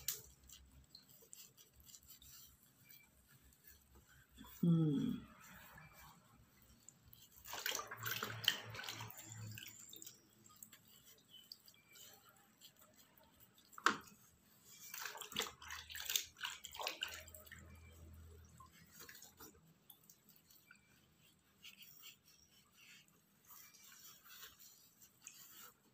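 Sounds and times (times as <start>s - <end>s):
cloth rubbing on face: 20.3s - 25.9s.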